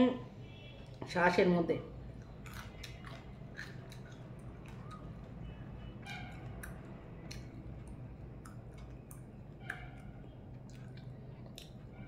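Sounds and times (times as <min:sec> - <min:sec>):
steady low hum: 0:01.7 - 0:12.0
person chewing and sucking: 0:02.1 - 0:05.6, 0:06.3 - 0:12.0.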